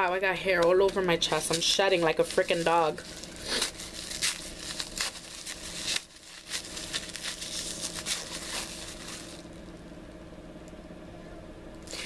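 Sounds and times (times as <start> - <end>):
packaging crinkling: 0.2 - 9.7.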